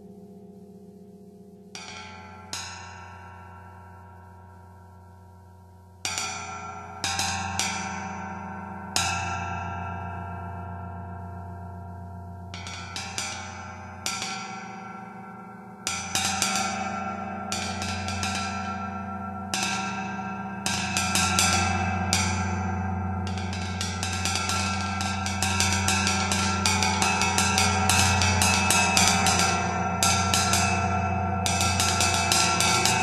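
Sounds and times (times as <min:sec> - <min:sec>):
drumstick taps on tam-tam: 0:08.7 - 0:33.0
gong ringing hum: 0:17.9 - 0:33.0.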